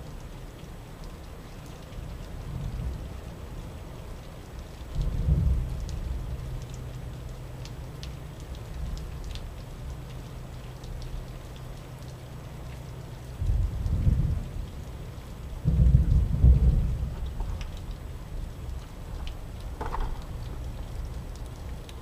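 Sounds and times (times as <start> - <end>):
raindrops ticking on surfaces: 0.0 - 22.0
steady rain: 0.0 - 22.0
thunder rumbling: 5.0 - 6.5, 13.4 - 14.7, 15.5 - 21.3.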